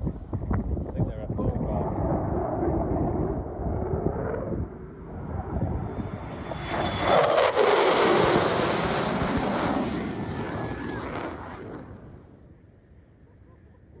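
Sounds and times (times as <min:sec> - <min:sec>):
fighter jet flying past: 0:01.4 - 0:12.6.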